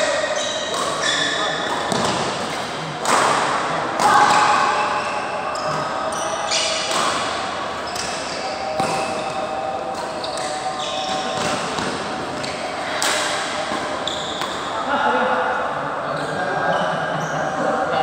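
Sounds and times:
shoe squeaks: 0.0 - 1.9, 4.3 - 6.9, 7.8 - 9.1, 10.0 - 11.7, 13.6 - 14.6
people calling and talking: 0.0 - 18.0.

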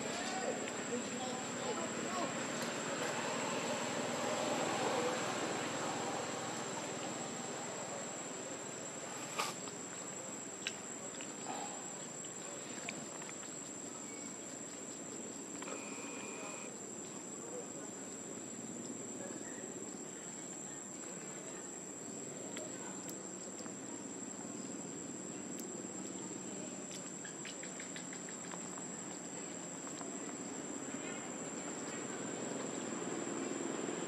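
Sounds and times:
high-pitched insect drone: 15.7 - 16.7.

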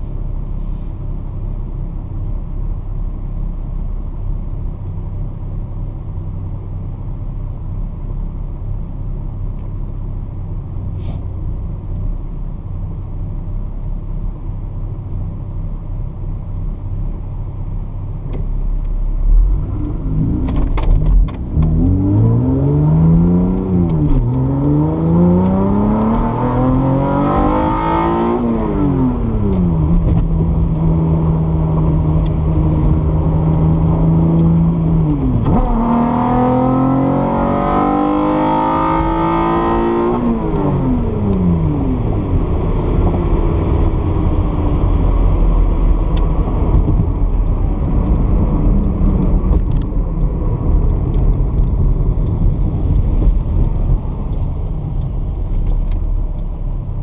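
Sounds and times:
road and tyre noise: 0.0 - 57.0
car engine accelerating: 14.1 - 57.0.

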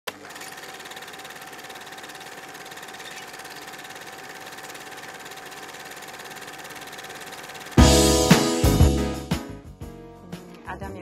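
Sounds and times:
film projector clattering: 0.1 - 7.9.

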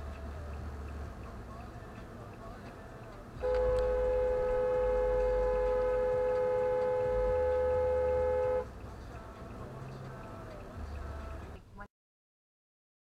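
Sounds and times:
car horn blast: 3.4 - 8.8.

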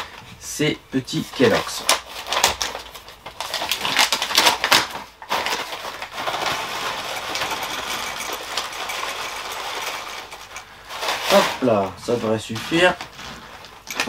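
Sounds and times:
paper bag rustling: 1.1 - 14.0.

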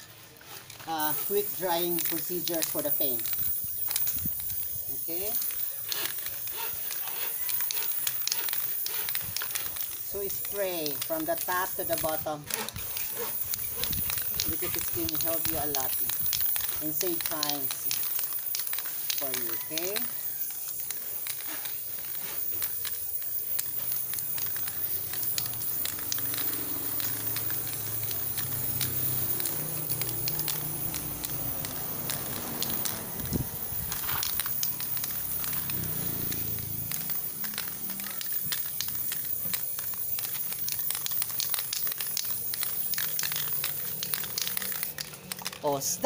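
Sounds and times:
light crackles: 0.0 - 46.0
spray paint can hissing: 0.0 - 46.0.

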